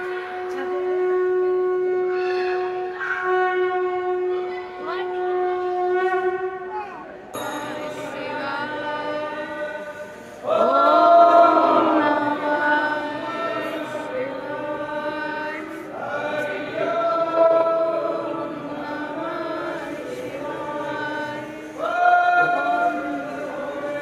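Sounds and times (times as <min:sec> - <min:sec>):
conch shell blown: 0:00.0 - 0:24.0
voices chanting: 0:07.4 - 0:24.0.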